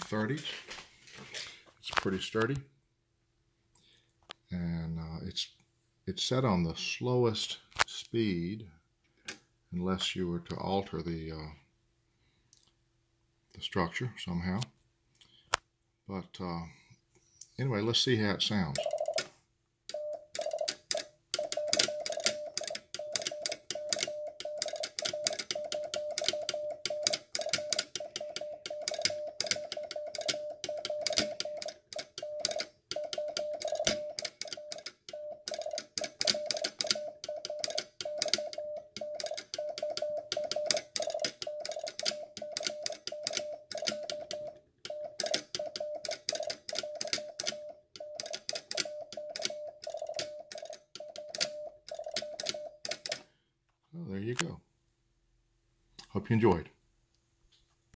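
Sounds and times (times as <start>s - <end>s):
morse code beep tone: 18.7s - 19.3s, 19.9s - 53.2s
telegraph key clicking: 19.9s - 53.3s.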